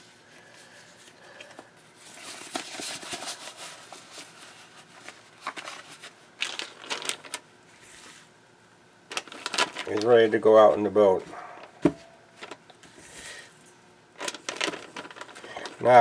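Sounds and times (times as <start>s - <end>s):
plastic bag crinkling: 2.0s - 7.4s, 9.1s - 10.8s, 14.2s - 16.0s.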